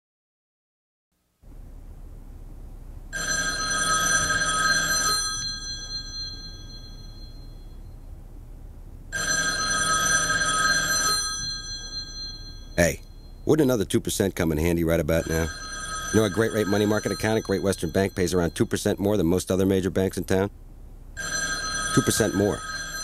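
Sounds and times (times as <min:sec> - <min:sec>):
telephone bell ringing: 0:03.1 - 0:07.8, 0:09.1 - 0:13.4, 0:15.1 - 0:19.1, 0:21.2 - 0:23.0.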